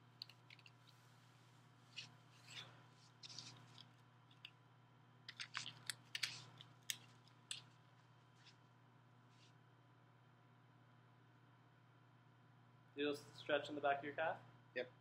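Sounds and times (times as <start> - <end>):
elastic band rustling and clicking: 0.0 - 1.1, 1.9 - 4.6, 5.3 - 8.6
low room hum: 0.0 - 15.0.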